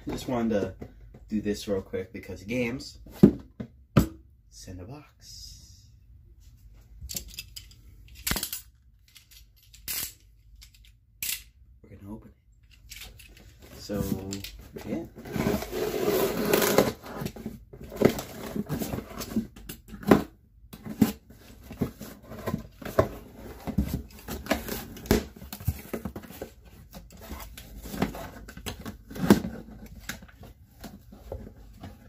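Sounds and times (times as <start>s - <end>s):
cardboard scrapes and rustles: 14.9s - 19.4s.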